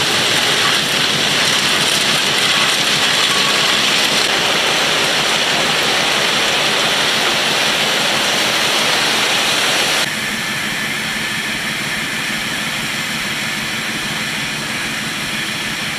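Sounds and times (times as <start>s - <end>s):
gravel pouring onto track: 0.0s - 9.1s.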